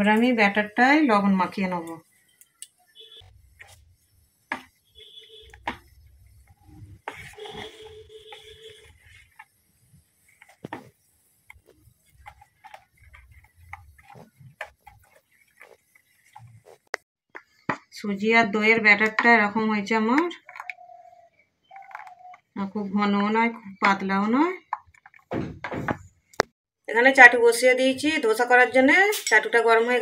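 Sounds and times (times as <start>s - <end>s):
spoon scraping steel plate: 6.7s - 9.5s.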